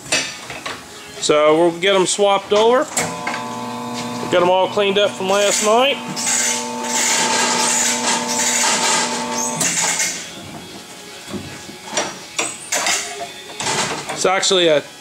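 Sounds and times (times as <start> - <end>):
tyre changer motor humming: 3.0 - 10.0.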